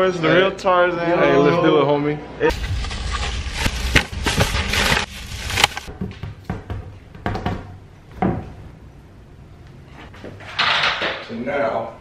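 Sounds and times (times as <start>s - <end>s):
plastic bags rustling: 2.5s - 5.9s.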